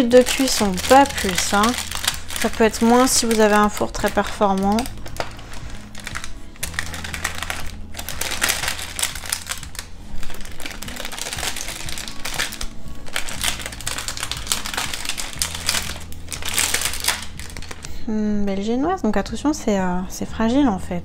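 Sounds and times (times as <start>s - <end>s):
parchment paper crackling and rustling: 0.0s - 18.0s.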